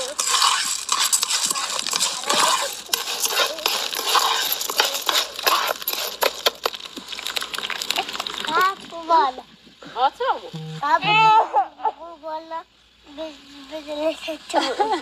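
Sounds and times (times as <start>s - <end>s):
spoon stirring corn kernels in pot: 0.0s - 8.5s.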